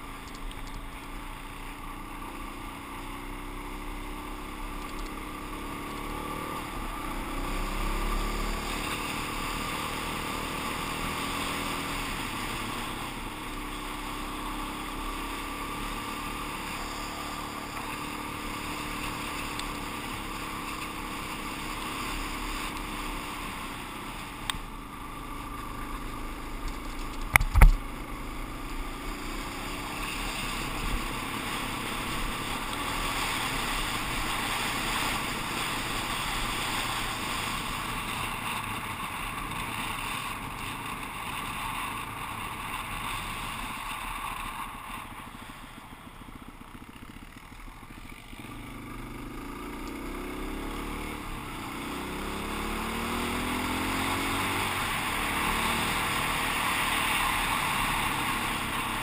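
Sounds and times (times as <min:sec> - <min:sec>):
dirt bike engine running: 0:00.0 - 0:59.0
road and wind noise: 0:00.0 - 0:59.0.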